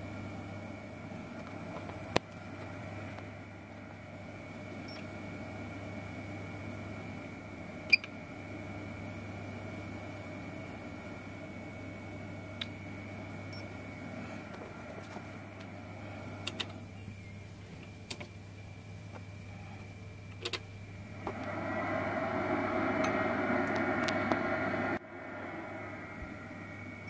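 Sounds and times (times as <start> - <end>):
fan hiss: 0.0 - 27.0
mains hum: 0.0 - 27.0
loud steady noise: 21.0 - 27.0.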